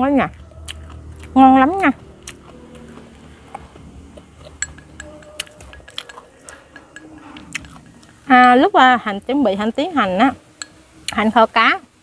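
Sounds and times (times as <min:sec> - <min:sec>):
chopsticks clicking on ceramic bowl: 0:04.4 - 0:07.8.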